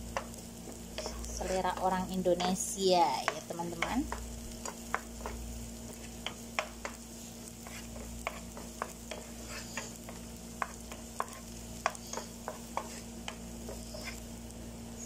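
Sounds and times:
faint sizzle of frying oil: 0:00.0 - 0:15.0
wooden spatula scraping pan: 0:00.9 - 0:03.4, 0:07.6 - 0:14.2.

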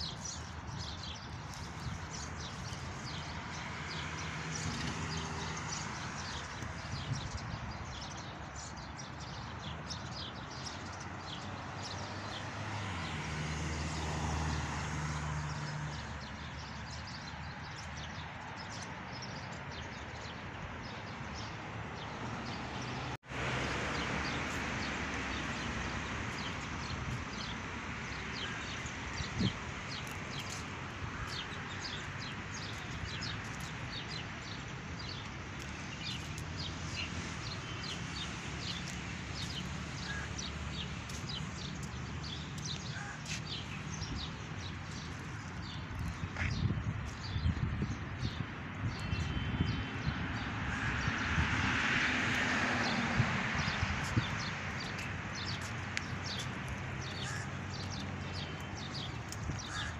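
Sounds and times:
small birds chirping: 0:00.0 - 0:12.5, 0:25.4 - 0:49.5, 0:52.3 - 0:59.9.

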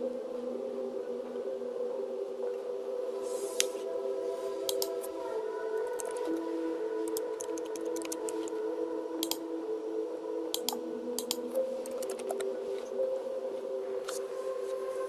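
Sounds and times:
soft ambient music: 0:00.0 - 0:15.0
short clicks: 0:09.2 - 0:09.4.

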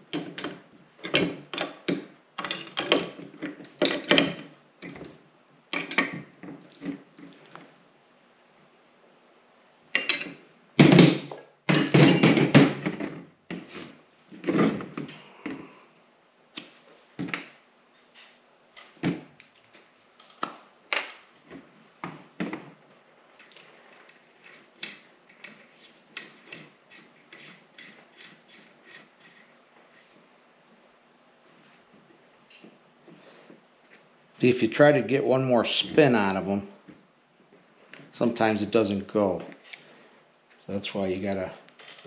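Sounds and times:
metal clanks of wrench and fittings: 0:11.7 - 0:13.0.

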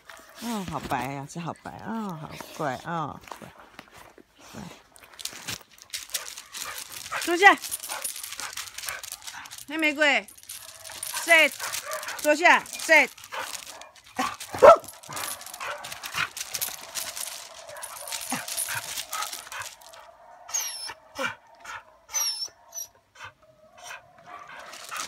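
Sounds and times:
paws crunching on gravel: 0:00.0 - 0:20.1, 0:24.3 - 0:25.0
dog yelp: 0:13.3 - 0:21.4, 0:22.1 - 0:23.0.

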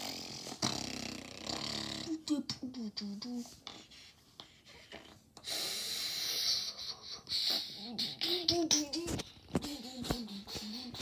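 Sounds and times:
child humming: 0:07.2 - 0:11.0.

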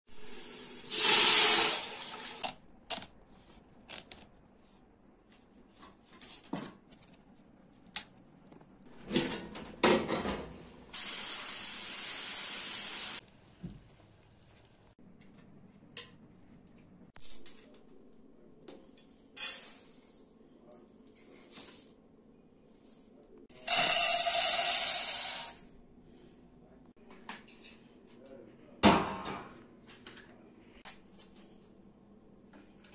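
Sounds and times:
water pouring into a pot: 0:00.2 - 0:02.4.

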